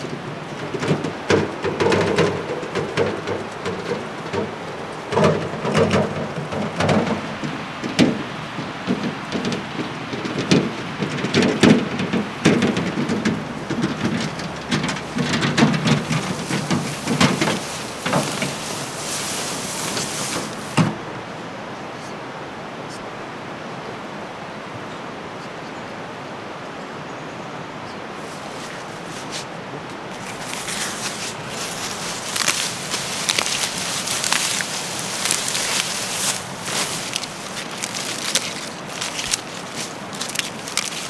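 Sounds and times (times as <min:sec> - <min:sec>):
metal wheelbarrow rattling: 0:00.0 - 0:21.0, 0:30.1 - 0:41.0
wheelbarrow knocks: 0:00.0 - 0:21.1, 0:30.1 - 0:41.0.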